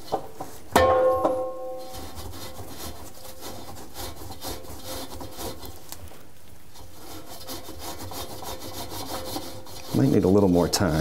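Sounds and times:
sponge scrubbing rubber seal: 0:01.8 - 0:05.9, 0:06.7 - 0:11.0.

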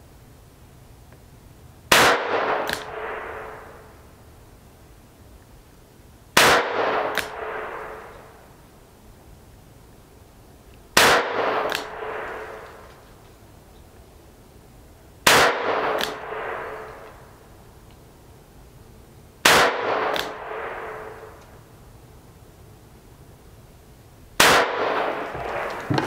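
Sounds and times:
gunshot echo crack: 0:01.9 - 0:03.9, 0:06.4 - 0:08.2, 0:11.0 - 0:12.8, 0:15.3 - 0:17.0, 0:19.4 - 0:21.4, 0:24.4 - 0:26.0
revolver gunshots: 0:24.4 - 0:26.0.

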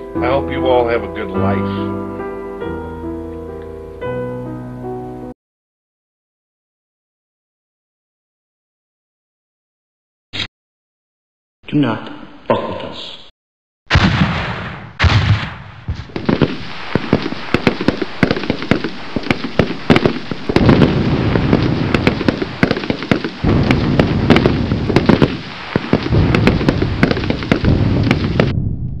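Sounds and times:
crackling pops and bangs: 0:13.9 - 0:29.0
low rumble: 0:23.4 - 0:29.0.

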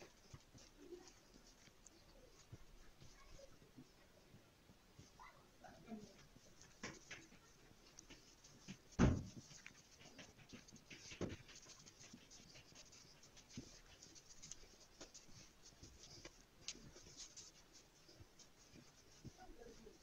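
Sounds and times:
hands rustling flour in a dish: 0:00.0 - 0:04.4, 0:05.0 - 0:20.0
dull thump: 0:08.8 - 0:09.5.

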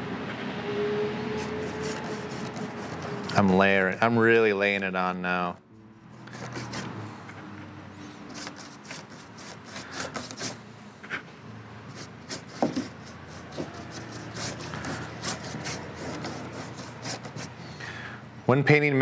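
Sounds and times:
paintbrush scrubbing and dabbing: 0:01.3 - 0:03.6, 0:06.2 - 0:07.0, 0:08.2 - 0:10.6, 0:11.9 - 0:17.6.

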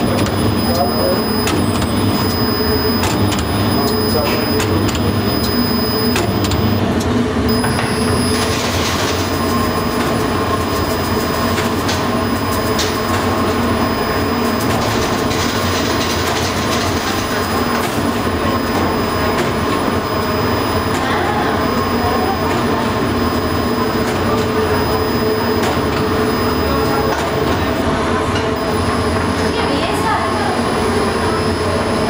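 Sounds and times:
faint steady whine: 0:00.0 - 0:06.8
machinery rattle and hum: 0:00.0 - 0:32.0.

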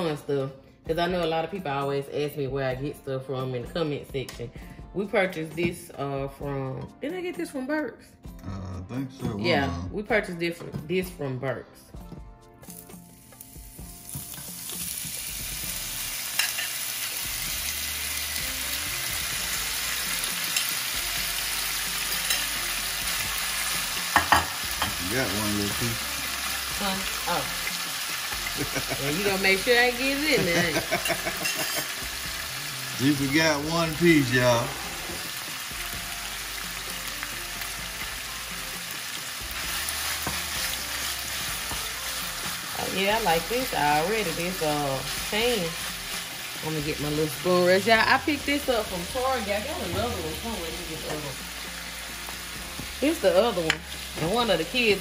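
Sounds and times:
steak sizzling in a pan: 0:12.6 - 0:55.0.

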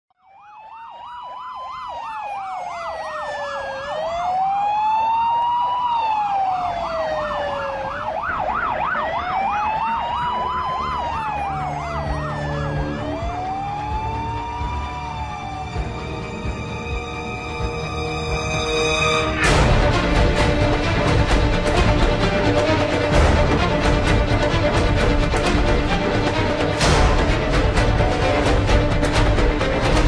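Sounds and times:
wailing siren: 0:00.1 - 0:30.0
yelping siren: 0:00.2 - 0:19.2.

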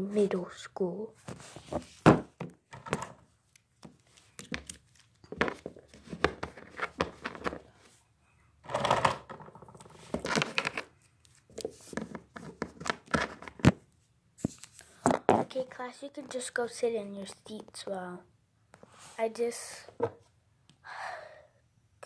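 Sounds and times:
plastic toy figures handled: 0:01.2 - 0:08.0, 0:08.6 - 0:16.5.

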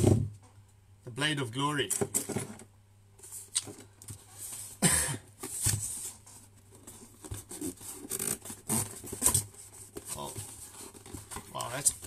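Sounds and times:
box handling scrapes and clicks: 0:06.8 - 0:12.0.

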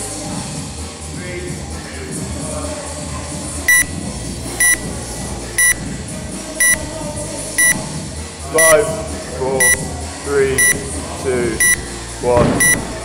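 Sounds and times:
background music: 0:00.0 - 0:13.0
short high-pitched timer beeps: 0:03.7 - 0:04.0, 0:04.6 - 0:04.9, 0:05.6 - 0:05.8, 0:06.6 - 0:06.9, 0:07.6 - 0:08.0, 0:08.6 - 0:08.8, 0:09.6 - 0:10.0, 0:10.6 - 0:10.9, 0:11.6 - 0:11.9, 0:12.6 - 0:12.9.

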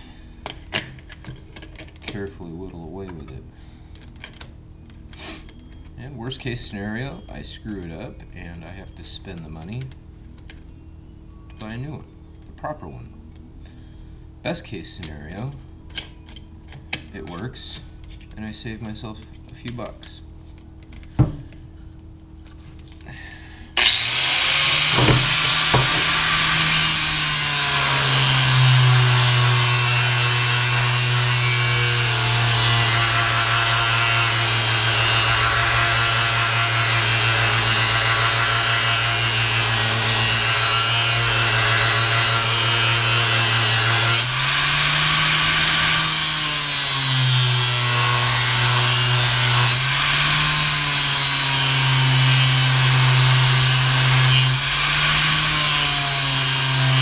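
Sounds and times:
power sander motor whine: 0:23.8 - 0:47.0
abrasive disc grinding metal: 0:23.8 - 0:57.0.

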